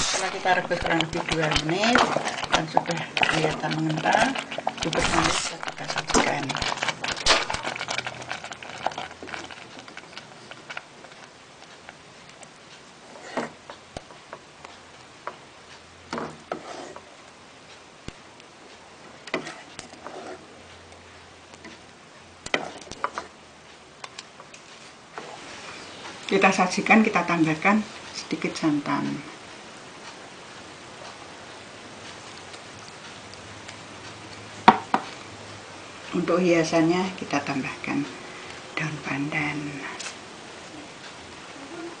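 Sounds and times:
ladle clattering: 0.0 - 11.3
steady background hiss: 0.0 - 42.0.

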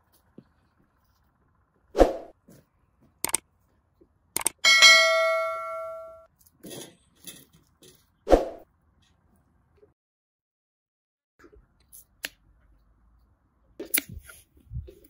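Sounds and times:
metal cookware ringing: 4.6 - 6.3.

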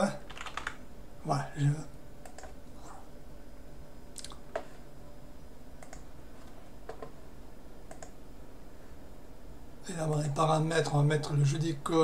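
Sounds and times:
low background hum: 0.0 - 12.0
computer mouse clicks: 2.2 - 2.6, 5.8 - 7.2, 7.9 - 8.2.

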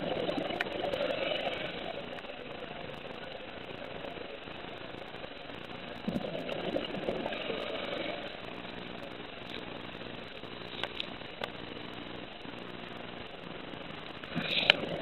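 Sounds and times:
regulator exhaling bubbles: 0.0 - 2.6, 6.0 - 11.2, 14.2 - 15.0
steady low hum: 0.0 - 15.0.

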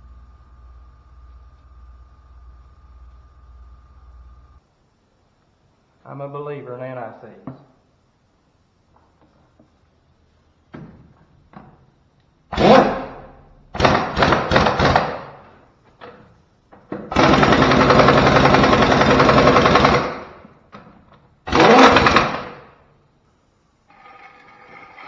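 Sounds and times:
air impact wrench hammering: 12.5 - 15.5, 17.0 - 20.4, 21.5 - 22.7.

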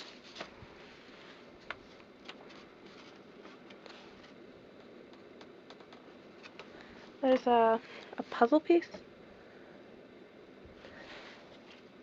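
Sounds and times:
paper envelope rustle: 0.0 - 0.6, 1.6 - 4.4.

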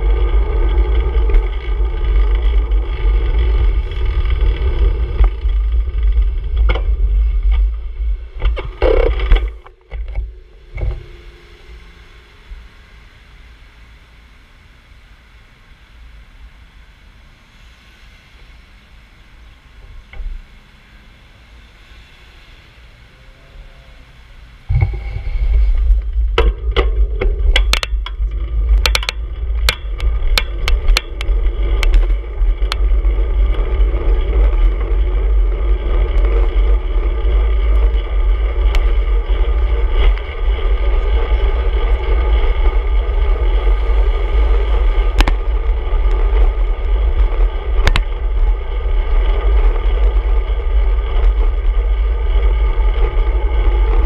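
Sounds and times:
wind and road noise: 0.0 - 54.0
sharp clicks and rattles: 24.7 - 54.0.

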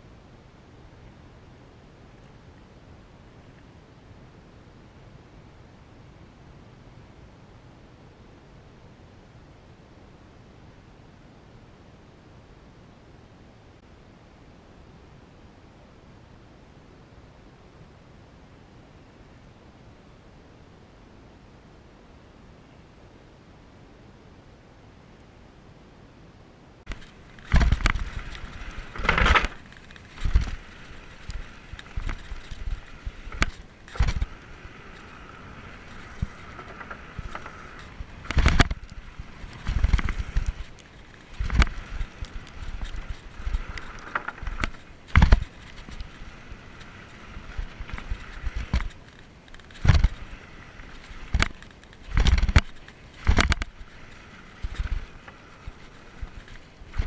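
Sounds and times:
high whir of rolling bike: 26.3 - 57.0
bike knocking and clattering: 26.9 - 57.0.

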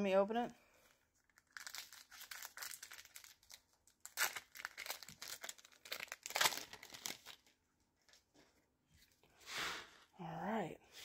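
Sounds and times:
foil wrapper crinkling and tearing: 1.2 - 7.6.

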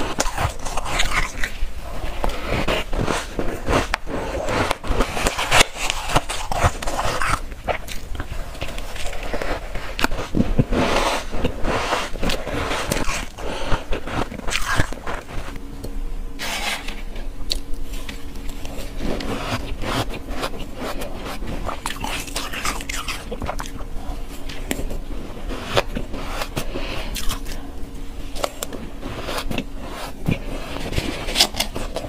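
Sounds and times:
chewing crunchy ice: 0.0 - 1.6, 2.2 - 10.7, 11.3 - 15.6, 17.5 - 25.0, 25.7 - 27.6.

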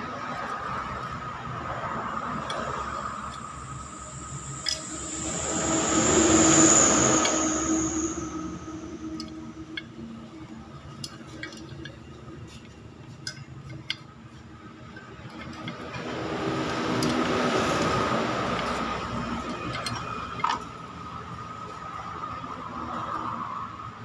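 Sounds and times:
broad rushing noise: 1.2 - 10.0.

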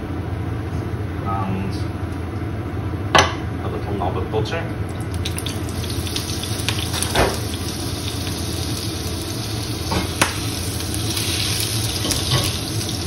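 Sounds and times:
butter fizzing in hot oil: 4.9 - 13.0.

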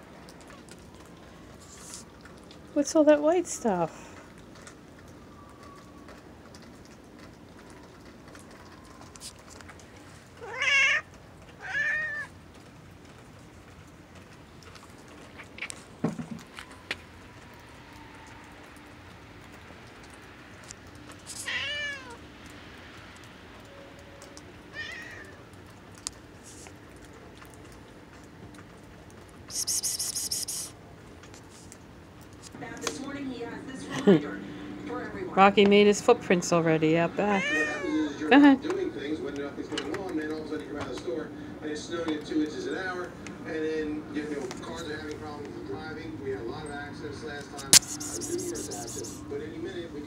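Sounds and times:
cat meowing: 10.4 - 12.3, 21.4 - 22.2, 24.7 - 25.4, 37.4 - 38.2
rapid high-pitched ticking: 29.5 - 30.7, 47.6 - 49.2.

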